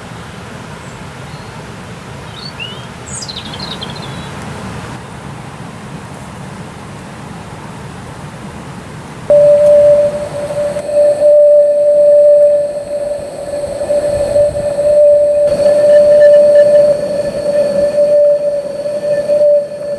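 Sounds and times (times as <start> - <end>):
small bird chirping: 2.3 - 4.4.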